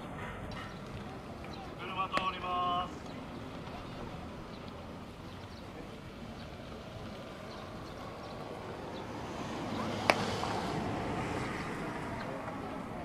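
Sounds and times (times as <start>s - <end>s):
baseball smacking into glove: 10.0s - 10.3s.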